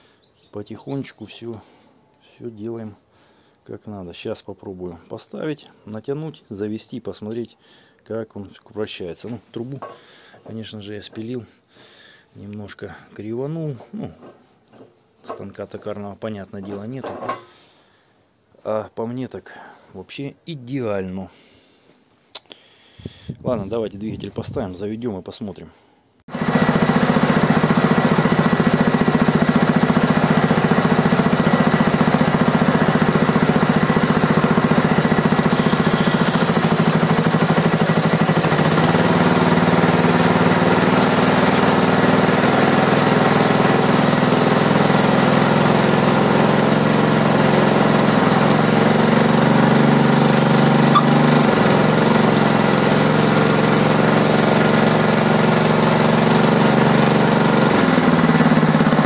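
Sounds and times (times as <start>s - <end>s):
small petrol engine running: 26.3s - 59.0s.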